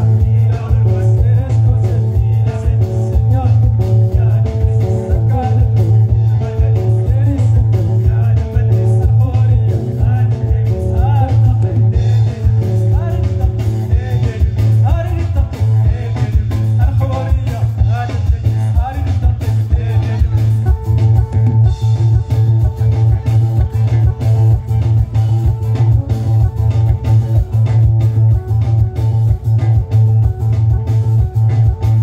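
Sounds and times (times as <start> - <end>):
person singing: 0.0 - 24.9
drum kit: 0.0 - 32.0
electric guitars: 0.0 - 32.0
heavy bass line: 0.0 - 32.0.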